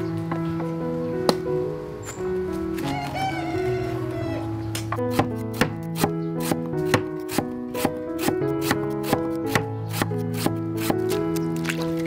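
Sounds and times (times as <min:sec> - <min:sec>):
background music: 0:00.0 - 0:12.0
cleaver chopping on wooden board: 0:04.9 - 0:11.2.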